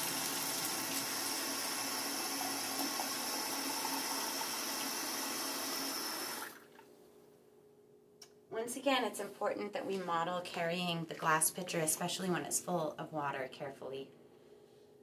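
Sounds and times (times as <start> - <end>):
faucet water running into pitcher: 0.0 - 6.8.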